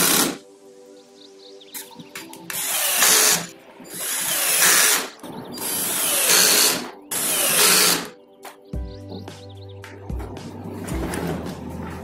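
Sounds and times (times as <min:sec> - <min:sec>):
cordless drill driving screws: 0:00.0 - 0:00.4, 0:02.5 - 0:08.1.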